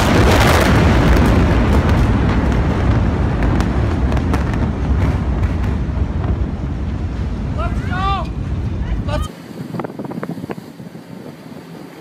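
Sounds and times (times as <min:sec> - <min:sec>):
explosion rumbling roar: 0:00.0 - 0:09.2.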